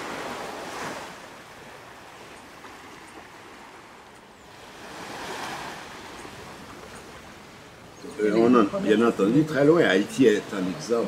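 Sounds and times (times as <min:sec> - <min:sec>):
small waves breaking on beach: 0:00.0 - 0:11.0.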